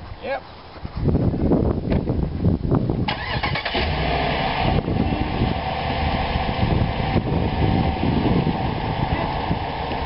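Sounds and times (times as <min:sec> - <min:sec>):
car engine idling: 0:03.2 - 0:10.0.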